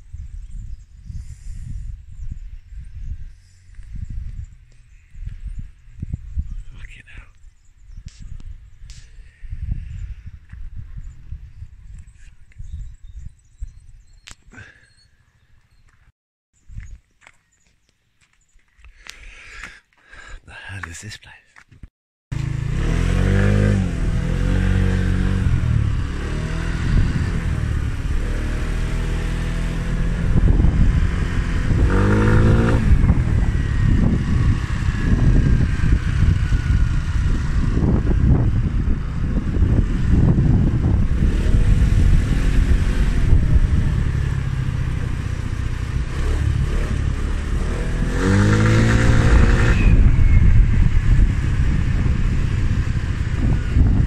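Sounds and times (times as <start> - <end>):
wind on microphone: 0.0 - 14.7, 22.7 - 54.0
scooter engine accelerating: 22.3 - 54.0.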